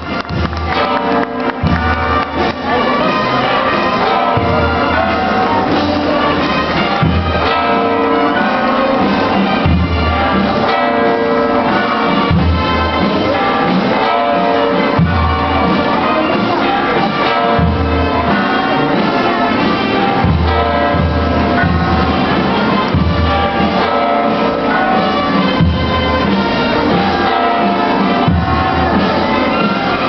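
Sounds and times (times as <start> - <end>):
church bells pealing: 0.0 - 30.0.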